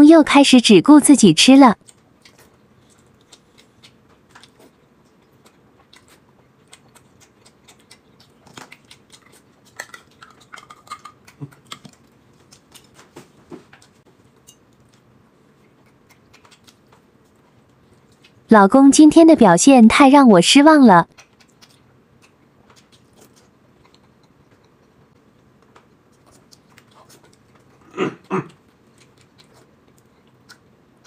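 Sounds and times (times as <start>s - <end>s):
faint chewing: 1.8s - 18.5s, 21.0s - 31.0s.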